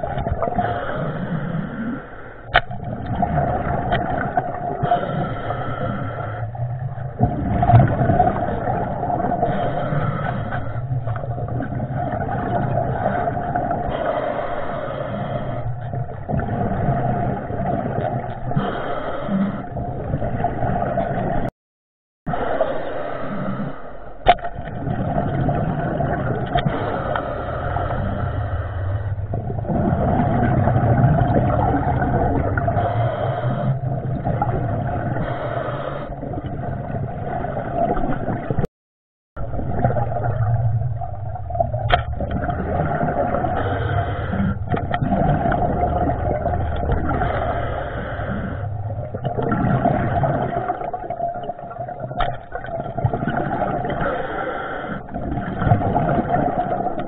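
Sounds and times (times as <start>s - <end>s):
muffled underwater rumbling hum: 0.0s - 21.5s, 22.3s - 38.7s, 39.4s - 57.0s.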